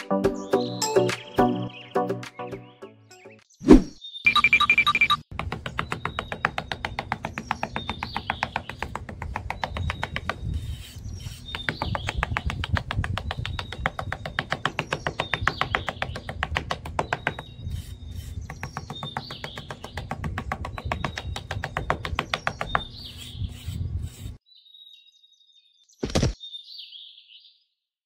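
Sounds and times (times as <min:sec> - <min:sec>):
bird chirps: 0:00.3 - 0:12.6, 0:13.2 - 0:27.7
trowel scraping sand: 0:10.4 - 0:11.8, 0:17.4 - 0:18.6, 0:22.9 - 0:24.4.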